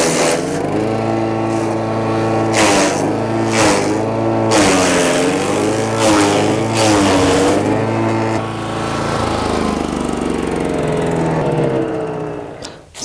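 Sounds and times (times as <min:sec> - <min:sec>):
blades chipping wood: 0:00.0 - 0:09.8
wood chipper engine running: 0:00.0 - 0:12.9.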